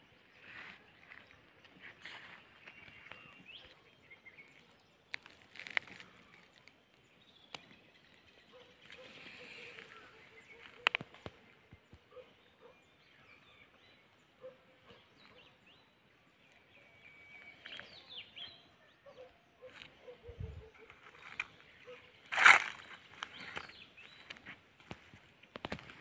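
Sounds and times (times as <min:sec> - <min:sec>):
birds chirping and calling: 0:07.5 - 0:25.0.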